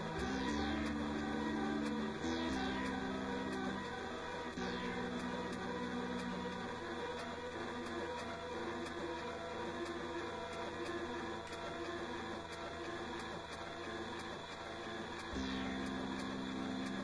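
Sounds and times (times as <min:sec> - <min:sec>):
electronic loop: 0:00.0 - 0:06.6, 0:15.4 - 0:17.0.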